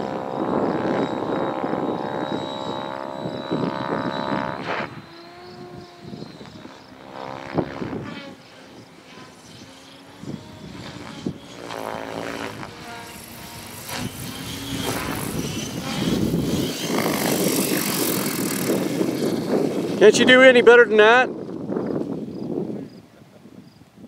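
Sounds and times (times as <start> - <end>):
model helicopter rotor whine: 0.0 - 23.1.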